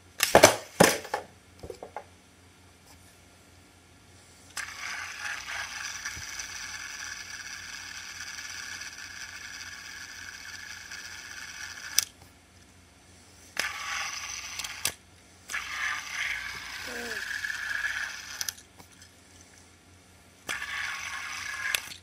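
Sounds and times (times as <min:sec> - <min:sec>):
fidget spinner whirring: 0:04.5 - 0:12.3, 0:13.4 - 0:19.8, 0:20.4 - 0:22.0
spinner stopping click: 0:20.5 - 0:22.0.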